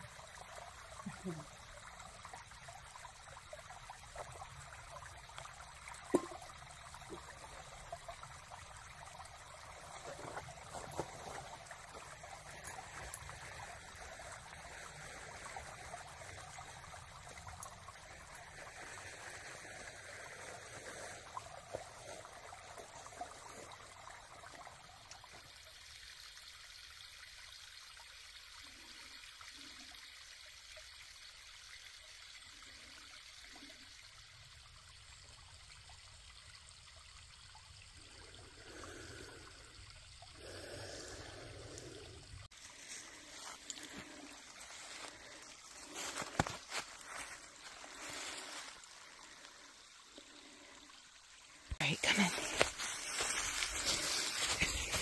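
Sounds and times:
waterfall trickling: 0:00.0 - 0:55.0.

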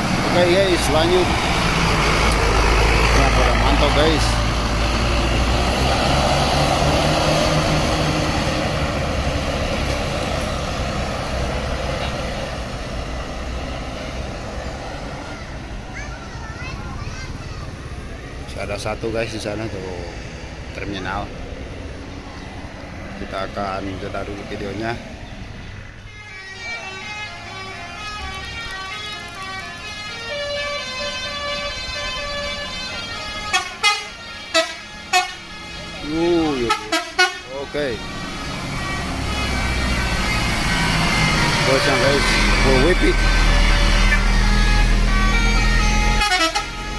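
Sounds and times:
bus diesel engine running: 0:00.0 - 0:46.9
road noise: 0:00.0 - 0:46.9
bus horn blasts: 0:26.0 - 0:46.9.

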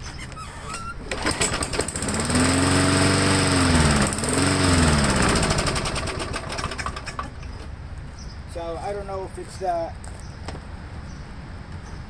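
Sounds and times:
lawnmower engine running unevenly: 0:01.1 - 0:07.6.

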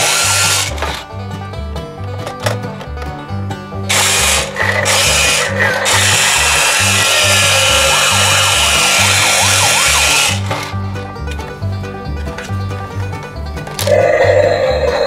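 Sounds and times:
background music with bass line: 0:00.0 - 0:15.0
toy police car siren effect: 0:03.9 - 0:10.7.

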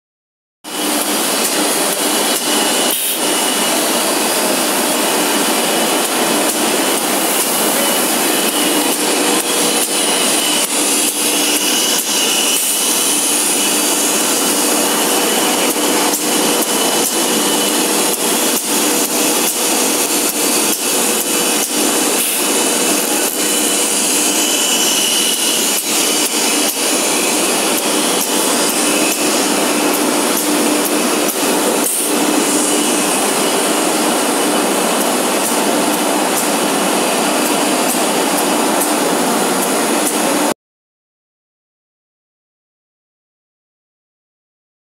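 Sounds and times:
faint high machine whine: 0:00.7 - 0:40.5
woodworking machinery running: 0:00.7 - 0:40.6.

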